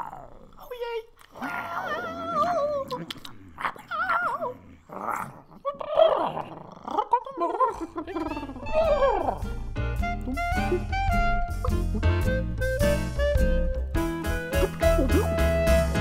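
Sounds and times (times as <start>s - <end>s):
dog-like whimpering and growling: 0.0s - 9.7s.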